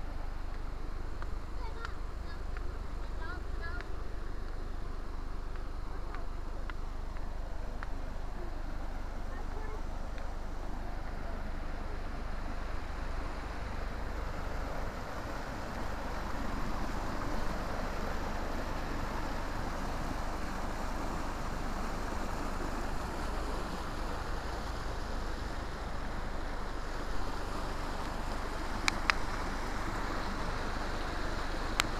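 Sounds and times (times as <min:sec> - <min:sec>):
stream rushing over boulders: 0:00.0 - 0:31.9.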